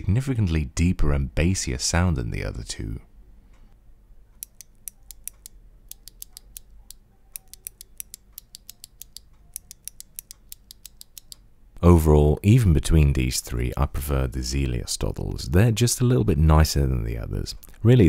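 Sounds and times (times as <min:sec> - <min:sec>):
mechanical key switches clicking: 0:04.4 - 0:11.4.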